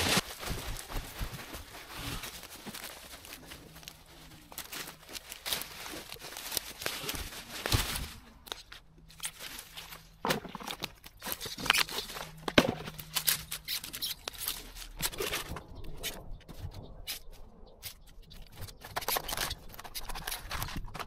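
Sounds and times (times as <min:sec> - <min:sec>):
twigs and leaves crackling: 0:00.0 - 0:21.0
twigs snapping: 0:02.3 - 0:16.3.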